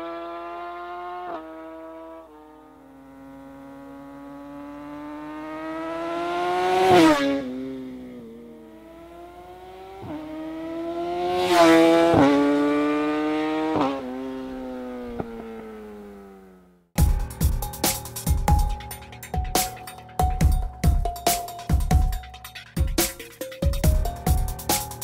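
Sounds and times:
motorcycle engine passing at speed: 0.0 - 16.9.

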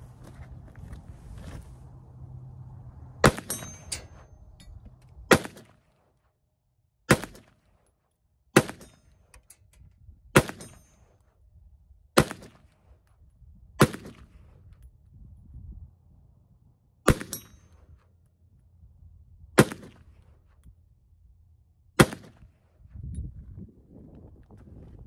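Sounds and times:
pistol shots: 5.3 - 5.7, 7.1 - 7.5, 8.6 - 9.0, 10.4 - 10.8, 12.2 - 12.6, 13.8 - 14.2, 17.1 - 17.5, 19.6 - 20.0, 22.0 - 22.4.

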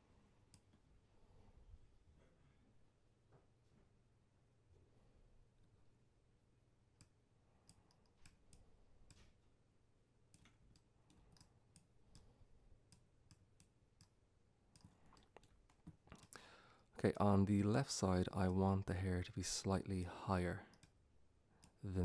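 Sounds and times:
faint low hum: 0.0 - 22.0
computer mouse clicks: 7.0 - 9.3, 10.3 - 12.3, 12.9 - 16.4.

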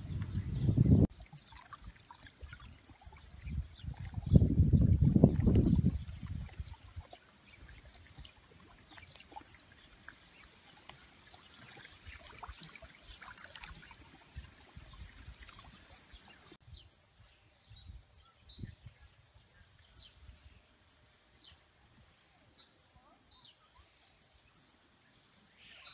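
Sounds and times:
small waves lapping on rocks: 4.8 - 16.6.

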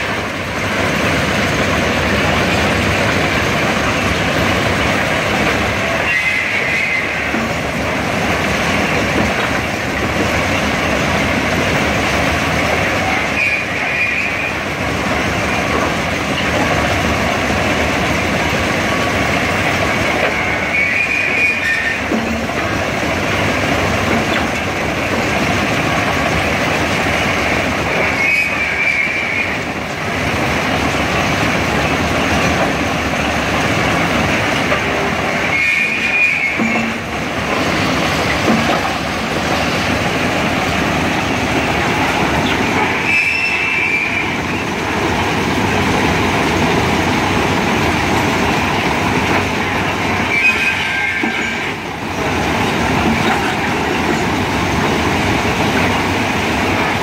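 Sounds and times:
track machine mechanical rumble: 0.0 - 57.0
brief high squeal: 20.4 - 22.1, 35.4 - 36.9, 43.0 - 44.4, 50.2 - 51.7.

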